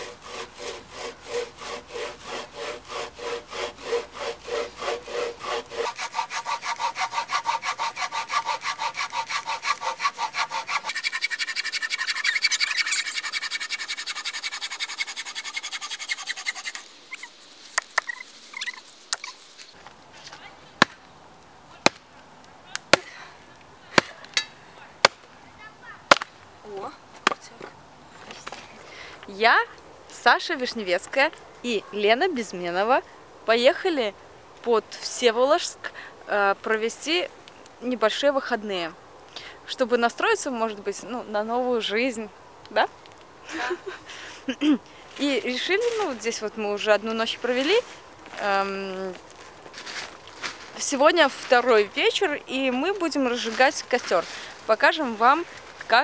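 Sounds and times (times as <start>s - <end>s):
bow saw cutting a log: 0.0s - 18.0s
axe striking a log: 20.8s - 21.0s, 21.8s - 22.1s, 24.0s - 25.2s, 26.1s - 26.3s.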